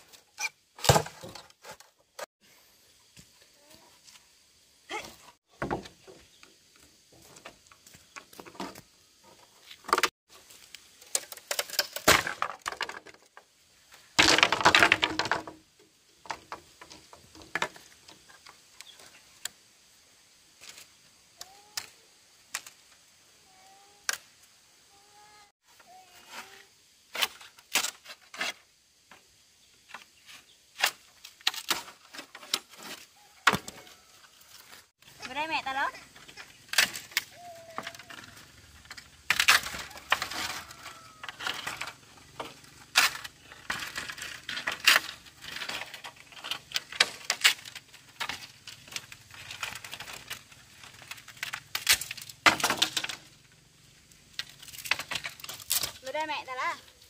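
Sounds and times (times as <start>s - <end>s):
sharp knocks and cracks of wood: 0.8s - 2.3s, 5.5s - 10.1s, 11.0s - 13.5s, 14.2s - 15.6s, 16.2s - 19.6s, 29.9s - 34.9s, 36.2s - 53.4s, 54.3s - 56.0s.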